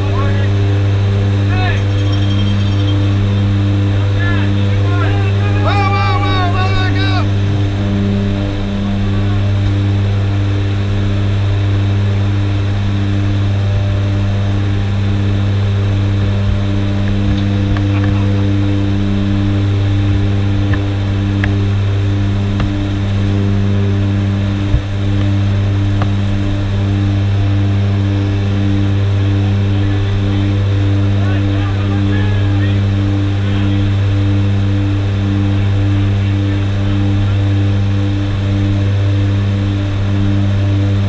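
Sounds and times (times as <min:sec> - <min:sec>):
propeller engines droning: 0:00.0 - 0:41.0.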